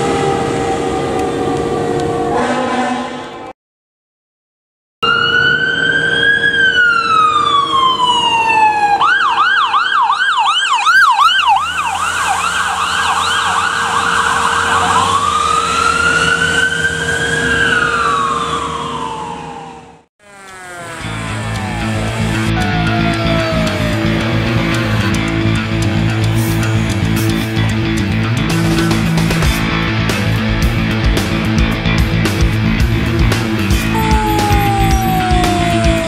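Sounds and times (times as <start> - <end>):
ambulance siren wailing and yelping: 5.0 - 25.2, 33.7 - 36.0
vehicle engine and tyre noise: 5.4 - 36.0.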